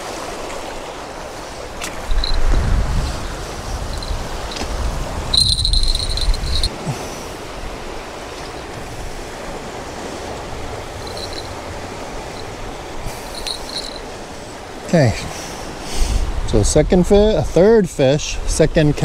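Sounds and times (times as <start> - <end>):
small waves breaking on rocks: 0.0 - 5.4
wind buffeting microphone: 0.9 - 14.6, 15.7 - 19.0
thin high squeak: 5.3 - 6.7, 11.1 - 11.5.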